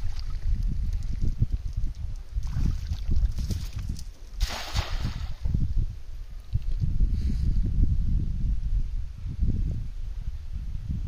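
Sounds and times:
wind buffeting microphone: 0.0s - 11.0s
net splashing onto water: 2.4s - 5.5s.

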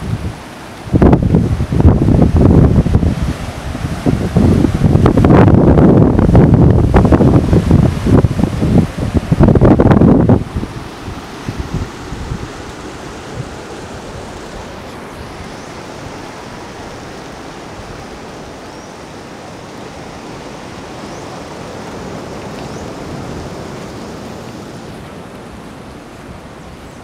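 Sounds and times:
sea surf rushing: 0.0s - 27.0s
wind: 0.0s - 27.0s.

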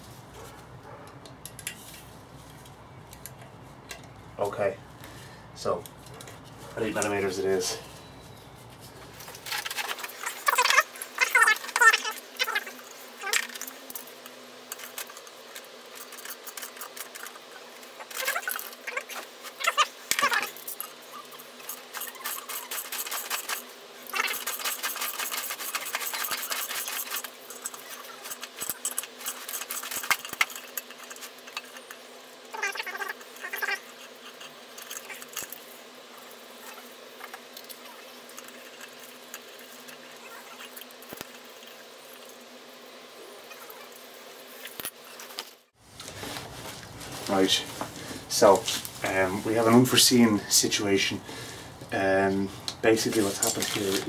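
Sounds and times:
metal tools clinking and scraping: 53.0s - 54.0s.

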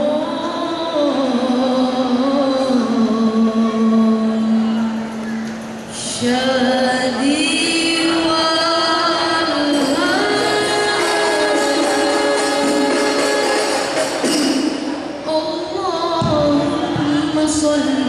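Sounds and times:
girls singing devotional chant: 6.0s - 14.2s.

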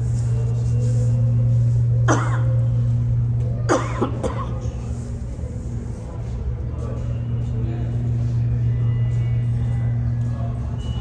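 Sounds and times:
low hum of station platform: 0.0s - 11.0s
person coughing: 2.0s - 2.6s, 3.7s - 4.6s.

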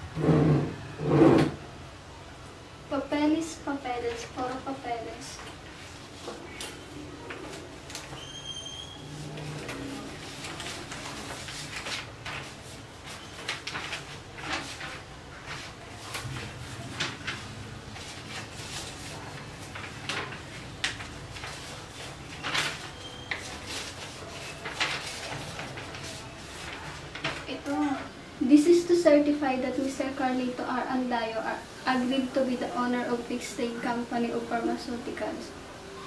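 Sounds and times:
paper rustling: 3.9s - 28.1s.

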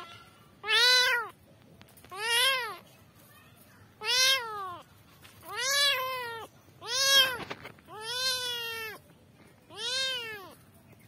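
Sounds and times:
kitten meowing: 0.0s - 1.4s, 2.1s - 2.8s, 4.0s - 9.0s, 9.7s - 10.6s.

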